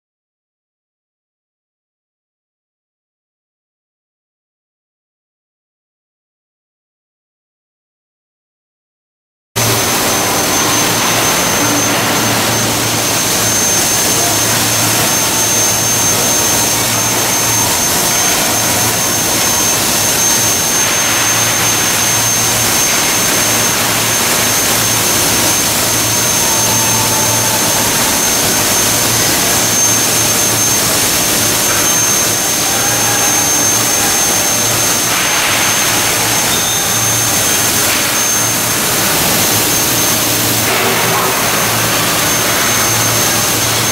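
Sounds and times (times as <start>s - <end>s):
high-pitched machinery whine: 9.6s - 43.9s
low machinery hum: 9.6s - 43.9s.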